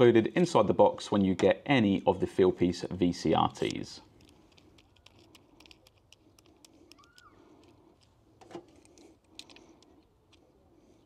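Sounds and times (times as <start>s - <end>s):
small metal fitting clicks: 3.6s - 10.5s
faint bird call: 6.9s - 7.5s.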